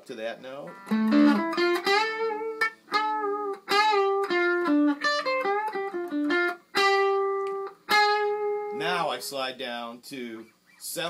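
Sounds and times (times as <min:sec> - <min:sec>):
electric guitar lead: 0:00.7 - 0:09.0.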